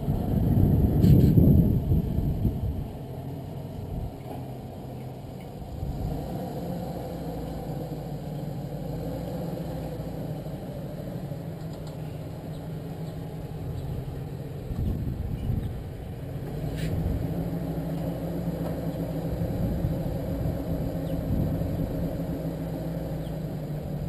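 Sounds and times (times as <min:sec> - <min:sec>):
truck engine running at low speed: 0:00.0 - 0:24.0.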